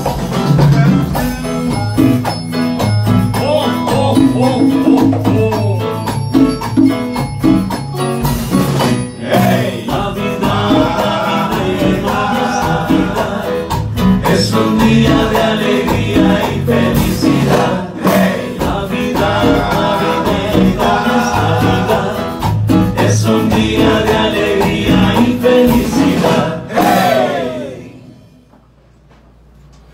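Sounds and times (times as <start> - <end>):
live latin band playing: 0.0 - 28.5
men singing: 0.6 - 2.4, 9.2 - 28.1.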